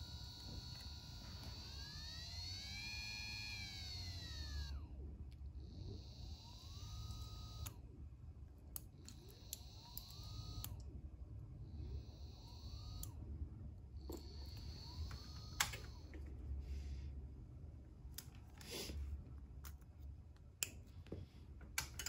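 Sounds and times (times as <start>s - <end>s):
small motor whine: 0.0s - 8.0s, 8.7s - 11.0s, 11.6s - 17.1s.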